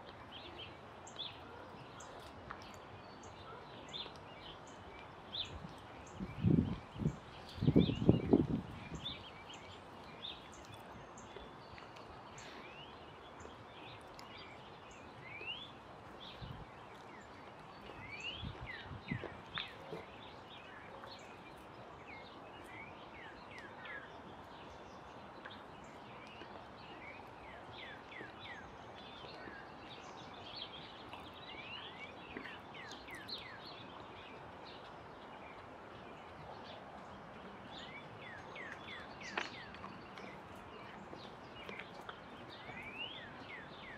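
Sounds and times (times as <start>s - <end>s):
songbirds chirping: 0.0s - 43.9s.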